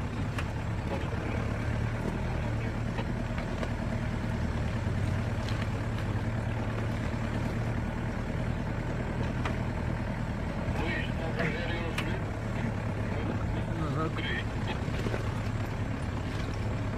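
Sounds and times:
diesel engine running at low revs: 0:00.0 - 0:16.9.

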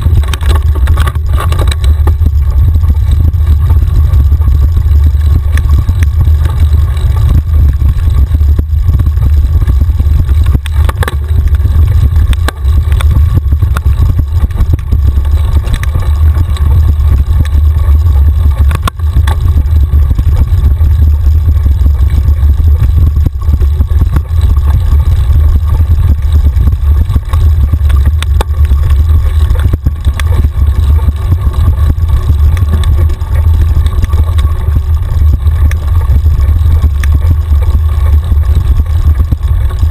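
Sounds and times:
bike knocks and rattles: 0:00.0 - 0:20.6
wind buffeting microphone: 0:00.0 - 0:39.9.

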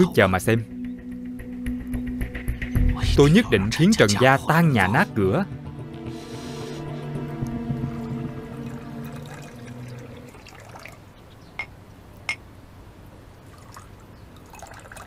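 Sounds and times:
tea trickling into cups: 0:06.1 - 0:11.7, 0:13.4 - 0:15.0.

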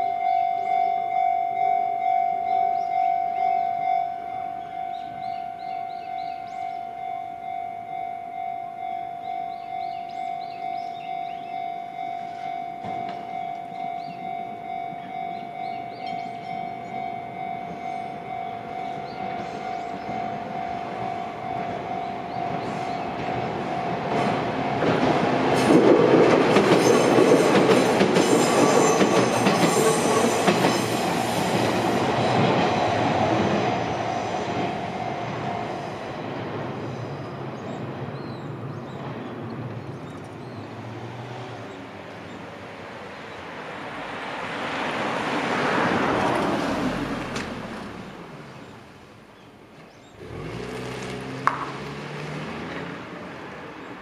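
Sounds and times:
crossing warning bell ringing: 0:00.0 - 0:36.4
cars passing: 0:00.0 - 0:54.0
train wheels clattering on rails: 0:18.8 - 0:36.8.

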